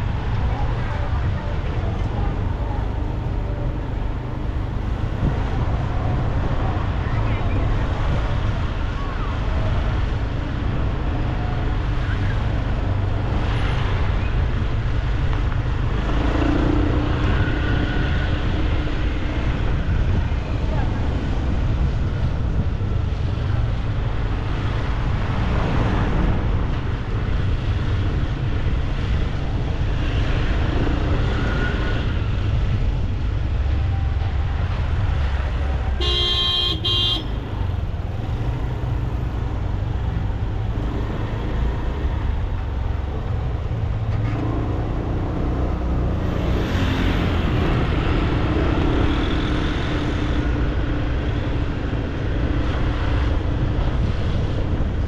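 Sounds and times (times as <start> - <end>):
road traffic rumble: 0.0 - 55.0
vehicle horn toots: 36.0 - 37.4.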